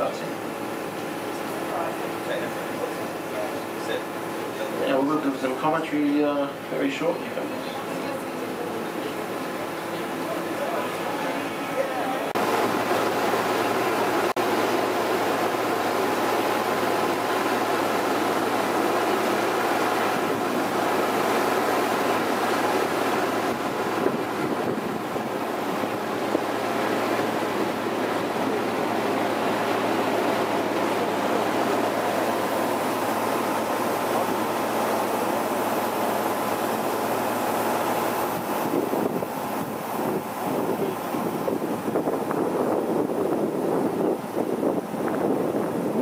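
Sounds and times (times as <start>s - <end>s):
boat engine running: 0.0s - 46.0s
water rushing in wake: 0.0s - 46.0s
wind on microphone: 19.3s - 32.7s, 38.2s - 46.0s.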